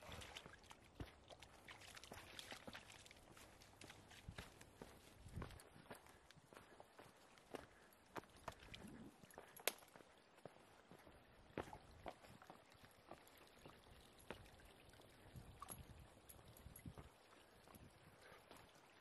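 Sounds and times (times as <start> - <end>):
footsteps on wooden plank walkway: 0.4 - 1.4, 2.1 - 14.4.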